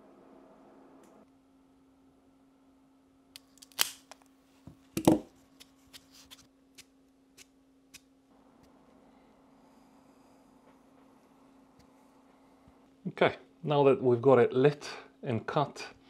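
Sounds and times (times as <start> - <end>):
steady low hum: 6.5 - 16.0.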